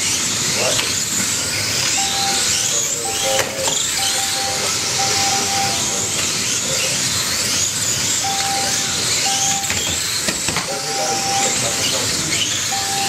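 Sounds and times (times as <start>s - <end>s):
tyres hissing on carpet: 0.0s - 12.9s
small electric motors whining: 0.0s - 13.0s
short steady beeps: 1.9s - 6.2s, 8.2s - 10.0s, 10.7s - 13.0s.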